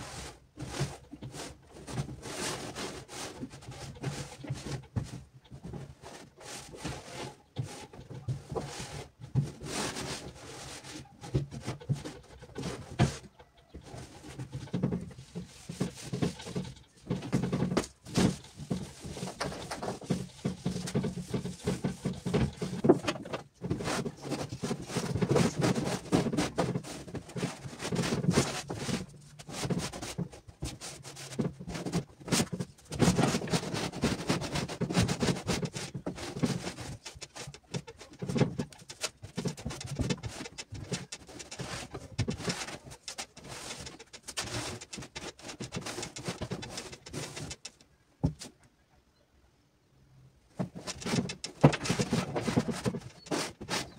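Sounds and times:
cloth rubbing on wardrobe doors: 0:13.9 - 0:48.4.

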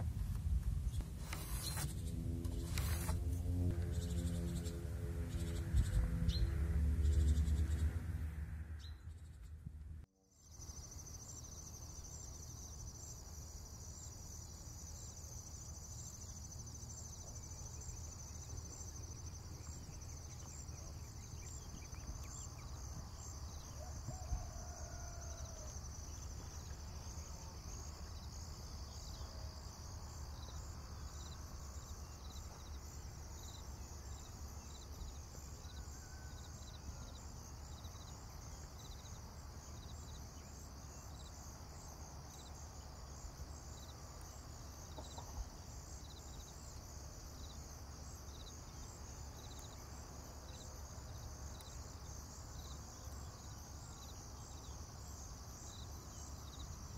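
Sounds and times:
low rumble: 0:01.8 - 0:10.1
insects trilling: 0:10.3 - 0:56.9.

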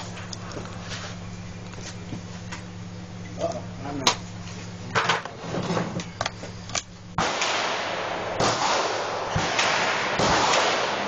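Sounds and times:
revolver cylinder metallic clicks: 0:06.0 - 0:07.2
sharp gunshots: 0:07.1 - 0:11.0.

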